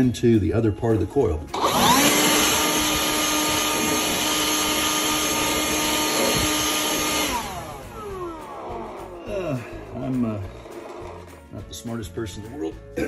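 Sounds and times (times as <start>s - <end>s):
electric blower whining: 1.5s - 11.6s.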